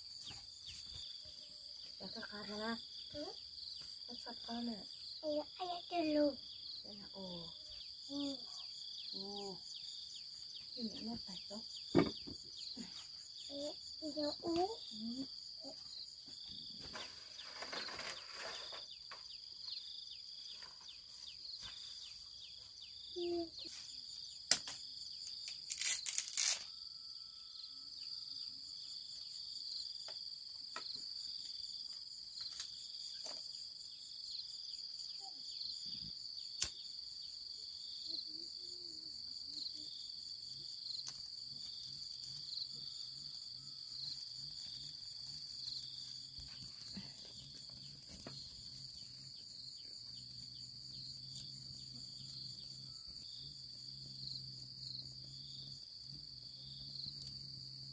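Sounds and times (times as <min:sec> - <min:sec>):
insects buzzing: 0:00.0 - 0:57.9
bamboo cracking: 0:24.5 - 0:26.7
snaps and clicks of handling strips: 0:25.4 - 0:26.7.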